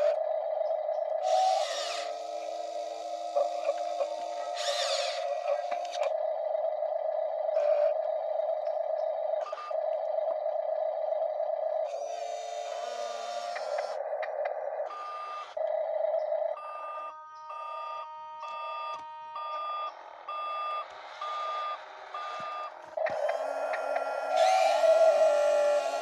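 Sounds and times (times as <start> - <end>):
electric drive whir: 0.0 - 6.2, 11.9 - 15.6, 20.8 - 26.0.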